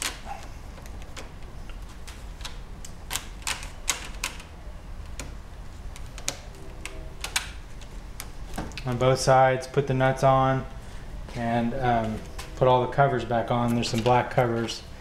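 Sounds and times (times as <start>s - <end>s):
hands clicking and tapping parts: 0.0s - 9.1s, 13.6s - 14.8s
low steady hum: 0.0s - 15.0s.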